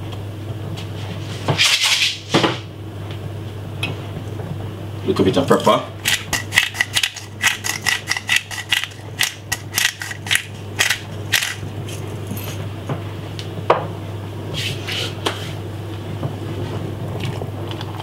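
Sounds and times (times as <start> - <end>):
low hum: 5.8 - 14.6
pepper mill grinding: 6.0 - 12.6.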